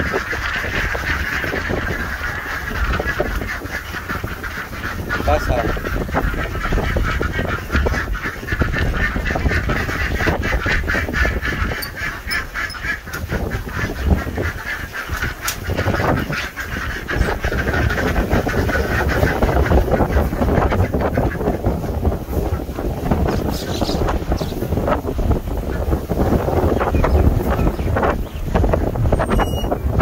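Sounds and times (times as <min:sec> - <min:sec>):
ducks and geese honking and quacking: 0:00.0 - 0:30.0.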